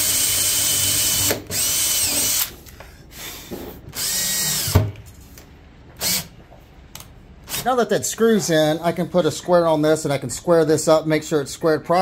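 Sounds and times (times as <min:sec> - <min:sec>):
cordless drill driving screws: 0:00.0 - 0:02.5, 0:03.9 - 0:04.8, 0:06.0 - 0:06.3.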